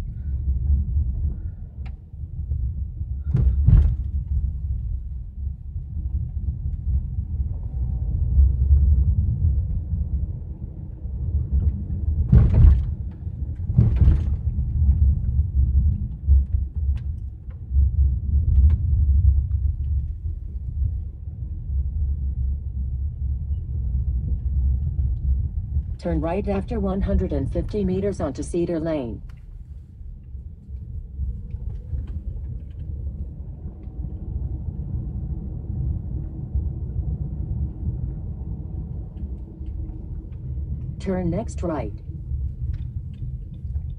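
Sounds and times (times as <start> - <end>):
car road rumble: 0.0 - 43.9
car thumps: 3.2 - 4.5, 12.3 - 15.0.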